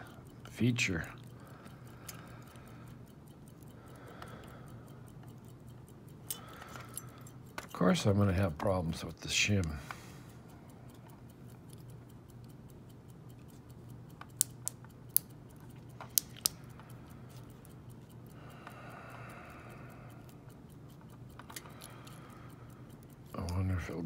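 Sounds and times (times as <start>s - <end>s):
faint steady hum: 0.0s - 24.0s
small sharp lock clicks: 16.0s - 16.6s.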